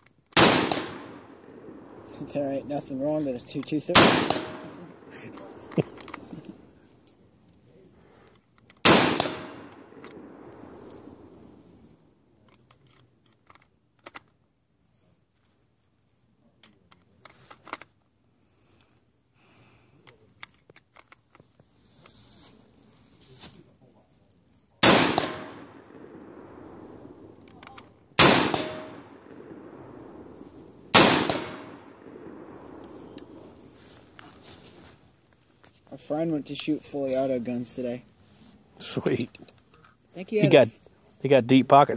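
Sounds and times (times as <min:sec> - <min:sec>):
rifle shots with echo: 0:00.4 - 0:06.3, 0:08.8 - 0:11.5, 0:24.8 - 0:33.8.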